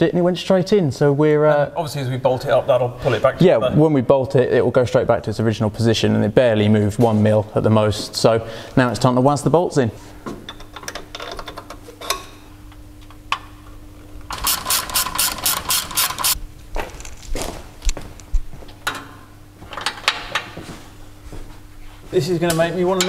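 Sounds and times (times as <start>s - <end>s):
hand ratchet clicking: 14.3s - 16.4s.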